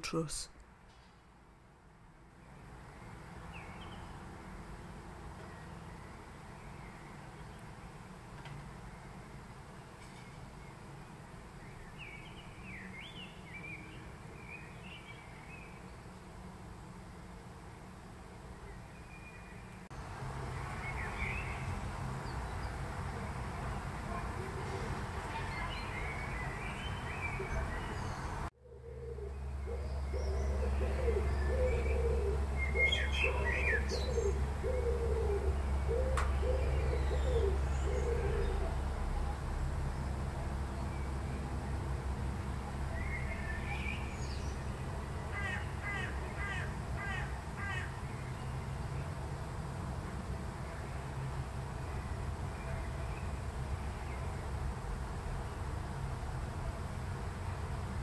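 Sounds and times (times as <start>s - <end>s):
small birds chirping: 2.4s - 4.4s, 18.6s - 41.5s
steady low background rumble: 25.2s - 58.0s
steady low hum: 28.3s - 58.0s
wood pigeon cooing: 28.6s - 38.9s.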